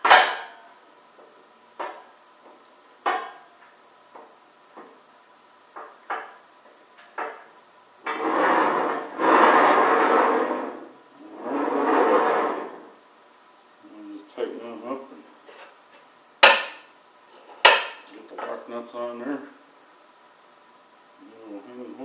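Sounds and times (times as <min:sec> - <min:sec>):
steel wheels rolling on beam: 0:08.0 - 0:13.0.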